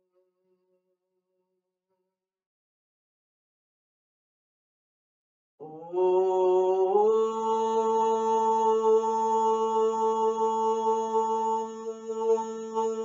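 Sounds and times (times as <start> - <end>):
woman chanting: 5.6 - 13.0.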